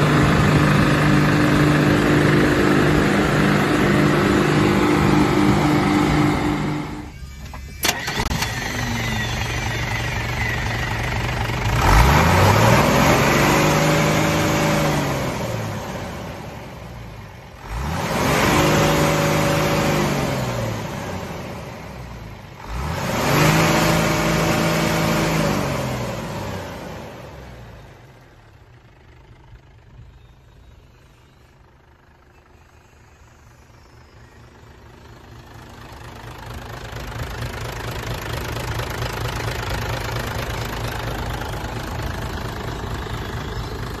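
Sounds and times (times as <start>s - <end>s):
diesel truck engine idling and revving: 0.0s - 44.0s.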